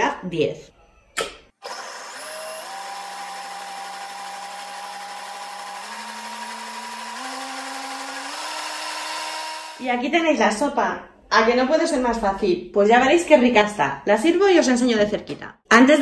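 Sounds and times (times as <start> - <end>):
blender motor whine: 1.6 - 9.8.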